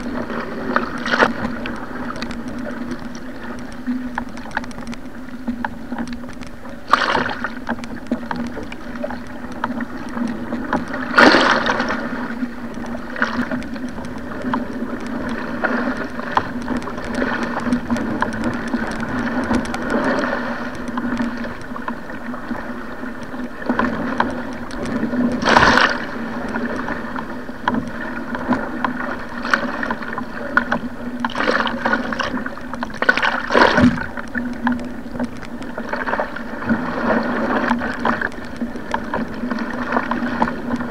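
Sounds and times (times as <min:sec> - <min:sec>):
water rushing along hull: 0:00.0 - 0:40.9
loud water splashes: 0:06.9 - 0:07.5, 0:11.1 - 0:11.9, 0:25.4 - 0:26.1, 0:33.0 - 0:34.1.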